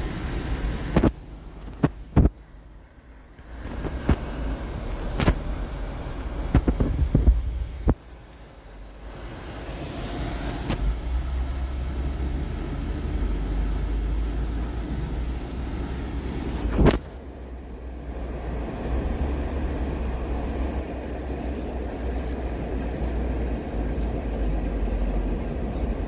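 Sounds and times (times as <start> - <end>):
car cabin rumble: 0.0 - 26.0.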